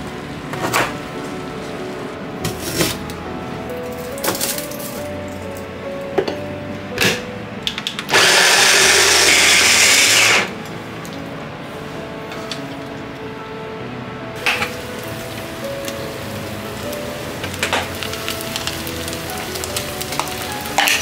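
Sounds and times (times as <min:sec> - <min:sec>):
electric chopper running: 0:08.1 - 0:10.6.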